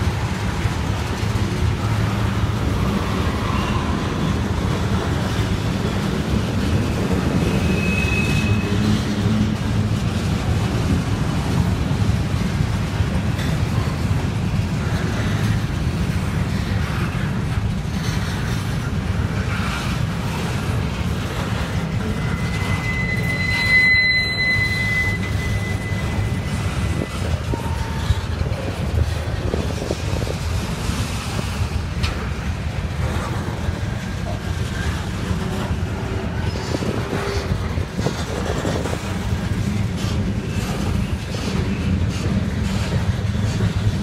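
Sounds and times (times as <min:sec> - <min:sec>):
sharp clicks from train trucks: 0:00.0 - 0:23.6, 0:25.1 - 0:44.0
train wheels rumbling on rail: 0:00.0 - 0:44.0
high squeal: 0:03.0 - 0:04.4, 0:07.4 - 0:08.9, 0:22.0 - 0:28.3.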